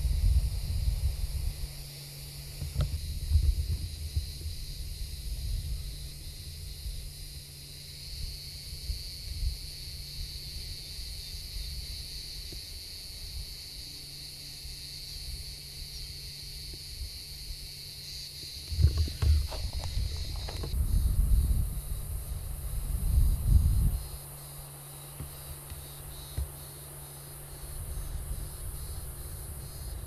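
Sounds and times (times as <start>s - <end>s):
wind rumble on microphone: 0.0s - 13.6s, 18.4s - 24.5s, 27.6s - 30.0s
cicadas buzzing: 0.0s - 30.0s.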